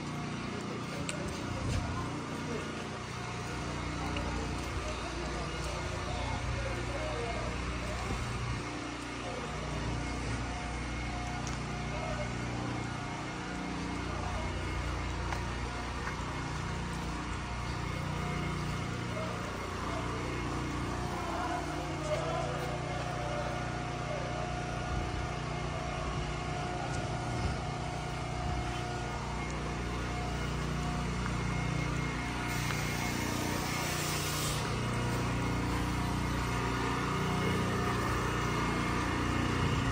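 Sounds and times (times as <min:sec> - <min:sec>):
engine hum: 0:00.0 - 0:39.9
faint voices: 0:00.0 - 0:39.9.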